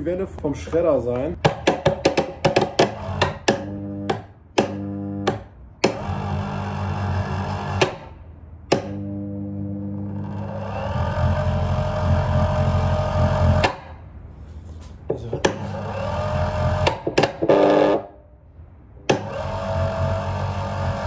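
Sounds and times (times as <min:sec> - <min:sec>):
electric motor humming: 0:02.8 - 0:13.7, 0:15.4 - 0:18.0, 0:19.1 - 0:21.0.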